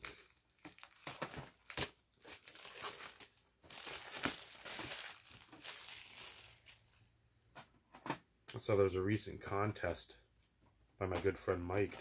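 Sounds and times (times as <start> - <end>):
packaging crinkling and tearing: 0.0 - 7.1.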